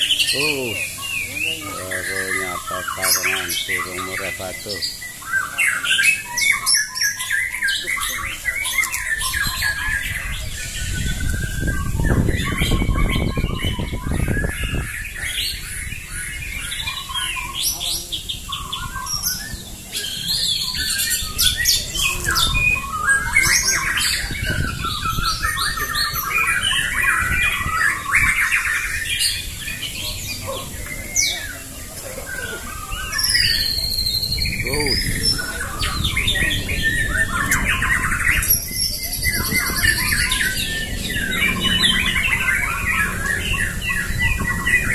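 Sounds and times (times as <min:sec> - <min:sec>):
birds singing in chorus: 0:00.0 - 0:44.9
low rumble: 0:36.1 - 0:44.9.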